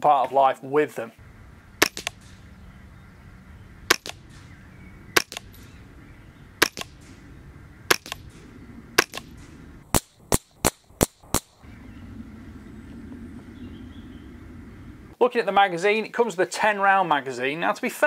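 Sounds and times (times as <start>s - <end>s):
suppressed rifle shots: 1.8s - 2.5s, 3.9s - 5.8s, 6.6s - 7.2s, 7.9s - 11.6s.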